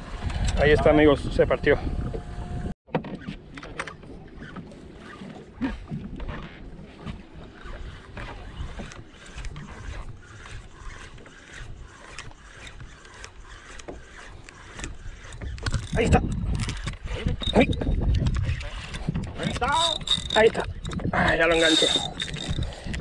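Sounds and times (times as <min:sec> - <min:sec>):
wind buffeting microphone: 0:00.0 - 0:02.8, 0:14.6 - 0:23.0
waves lapping against boat hull: 0:03.2 - 0:23.0.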